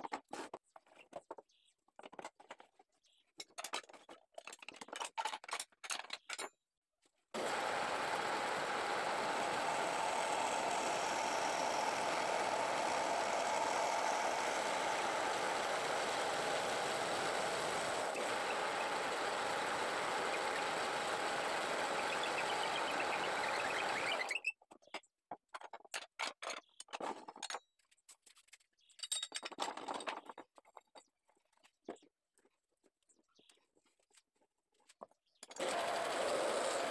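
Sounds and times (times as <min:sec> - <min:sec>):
tools clicking and knocking: 0:01.2 - 0:06.7, 0:24.6 - 0:27.9
wood lathe drilling whirr: 0:07.4 - 0:24.4, 0:35.6 - 0:36.9.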